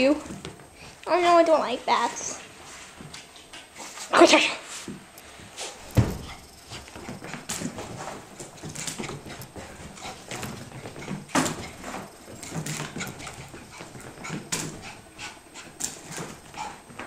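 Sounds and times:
dog scrambling clicks and scuffs: 5.8s - 17.0s.

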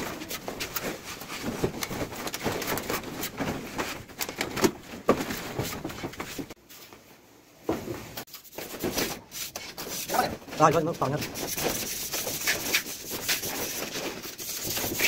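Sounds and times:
trowel scraping and tapping plaster: 8.3s - 15.0s.

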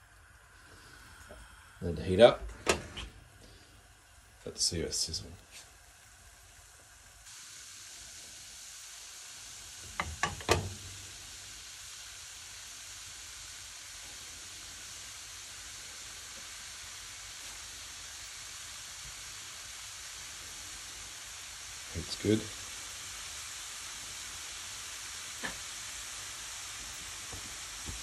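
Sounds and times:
steak sizzling in a frying pan: 4.2s - 28.0s
sharp clicks and knocks: 10.0s - 10.8s.

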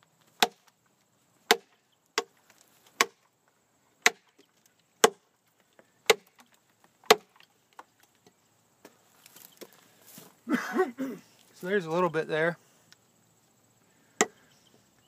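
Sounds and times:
knife chopping into log: 0.4s - 0.7s, 1.5s - 2.3s, 3.0s - 3.2s, 4.0s - 4.3s, 5.0s - 5.2s, 7.0s - 7.4s.

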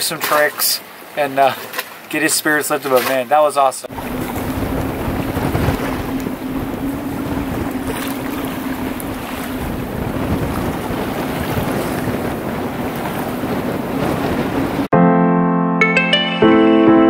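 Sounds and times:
rushing sea water: 0.0s - 14.9s
low steady hum: 3.9s - 10.4s
wind buffeting microphone: 3.9s - 14.9s.

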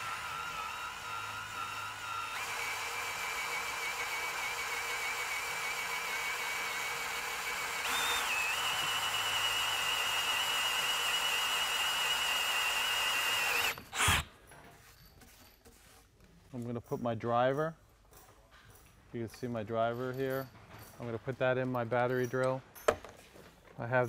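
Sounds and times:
power drill boring into wood: 0.0s - 14.3s.

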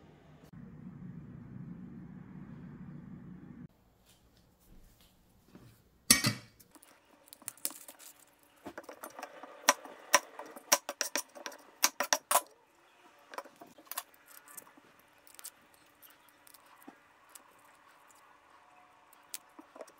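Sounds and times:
shallot skins crackling: 6.6s - 11.2s, 13.0s - 19.9s.

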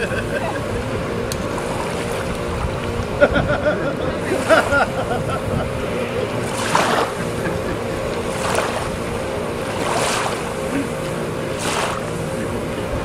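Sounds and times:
hand paddling water splashes: 6.3s - 12.6s.

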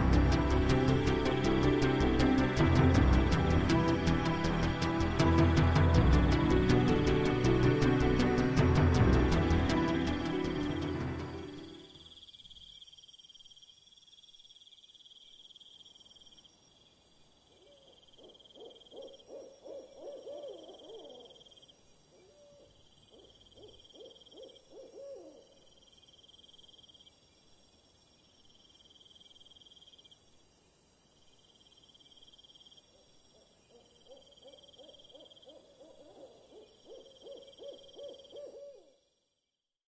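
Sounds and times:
insects chirping: 0.0s - 39.5s
low wavering hoot-like calls: 17.6s - 21.5s, 22.2s - 25.6s, 33.3s - 39.0s.

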